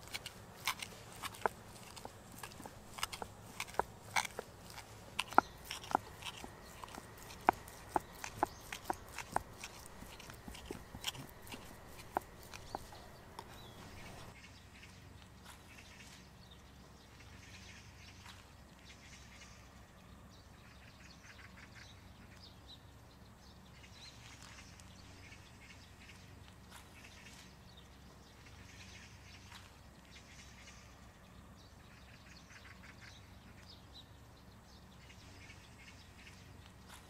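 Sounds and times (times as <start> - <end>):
knife chopping on cutting board: 0.0 - 13.0
faint bird calls: 0.0 - 16.3
low background hum: 0.0 - 37.0.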